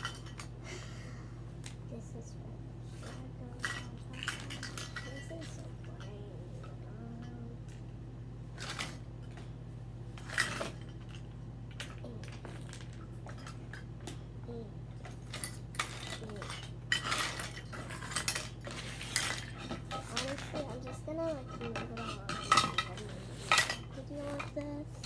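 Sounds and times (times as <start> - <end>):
low electrical hum: 0.0 - 25.0
small hard objects clinking: 15.0 - 24.5.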